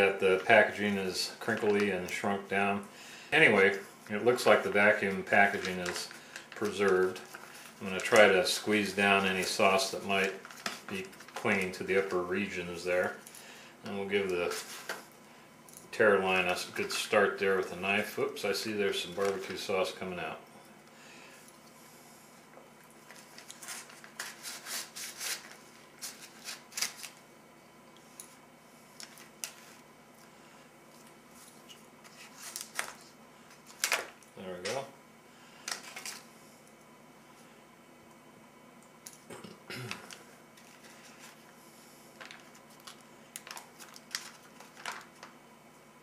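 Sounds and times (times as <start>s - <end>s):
foil pouch crinkling and tearing: 4.2s - 12.0s, 23.1s - 27.2s, 42.2s - 45.3s.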